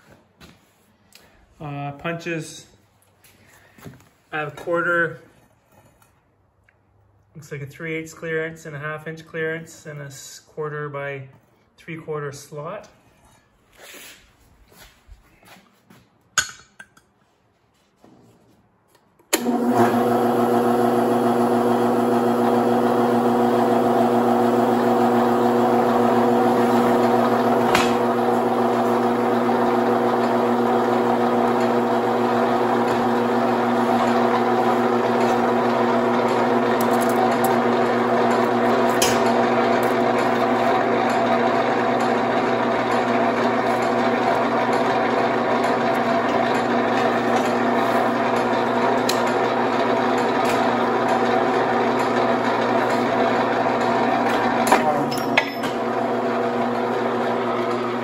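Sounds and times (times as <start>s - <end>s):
electric motor humming: 19.4s - 58.0s.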